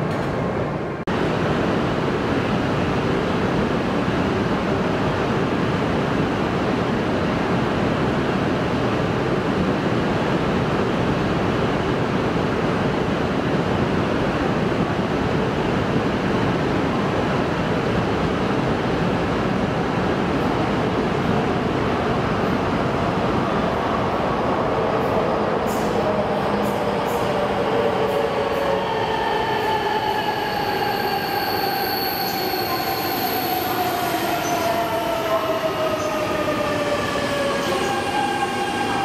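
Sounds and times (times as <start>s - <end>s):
station platform ambience: 0.0s - 39.0s.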